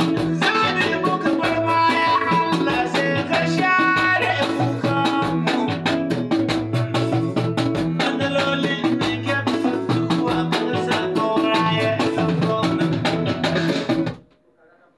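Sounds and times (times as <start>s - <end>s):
music with drum beat and bass: 0.0s - 14.3s.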